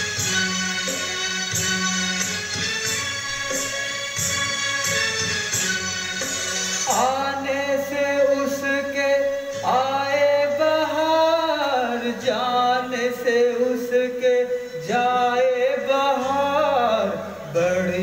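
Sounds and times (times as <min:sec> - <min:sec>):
low musical accompaniment: 0:00.0 - 0:18.0
man singing long notes: 0:06.9 - 0:18.0.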